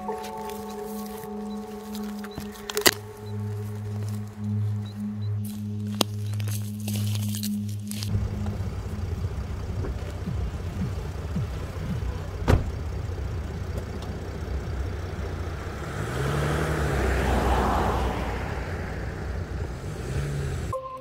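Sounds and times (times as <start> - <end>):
low outdoor rumble: 0.0 - 20.7
motor vehicle passing by: 8.1 - 20.7.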